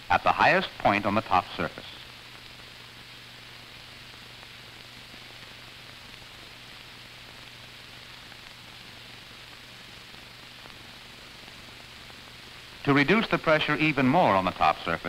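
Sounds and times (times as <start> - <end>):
film soundtrack hiss: 0.0 - 15.0.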